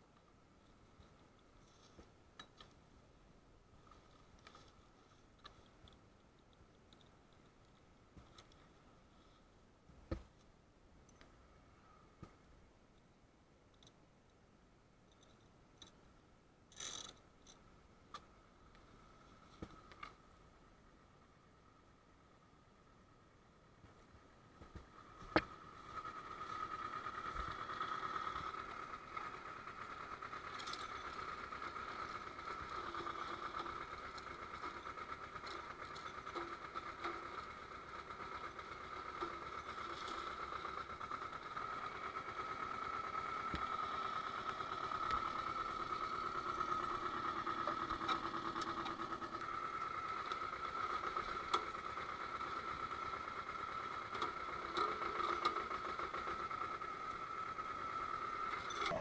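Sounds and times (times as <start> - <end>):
tractor engine running: 23.8 - 59.0.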